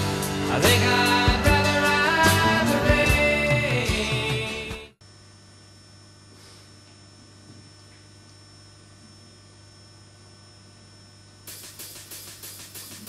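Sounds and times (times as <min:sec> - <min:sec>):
music: 0:00.0 - 0:05.0, 0:11.5 - 0:13.0
electrical mains hum: 0:05.0 - 0:13.0.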